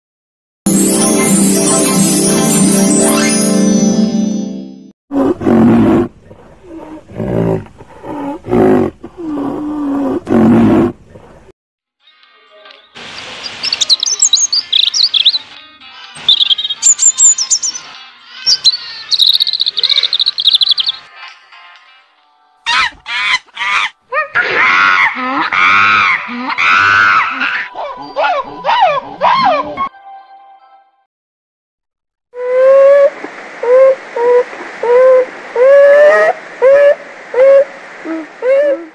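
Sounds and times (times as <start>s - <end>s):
robin twittering song: 12.1s - 15.6s, 16.2s - 21.1s
macaque high wavering calls: 13.6s - 15.4s, 16.2s - 21.1s.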